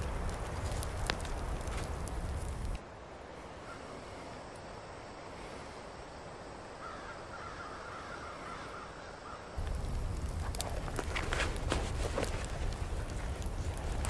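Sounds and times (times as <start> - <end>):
wood fire crackling in stove: 0.0 - 2.8, 9.6 - 14.0
outdoor hiss: 0.0 - 14.0.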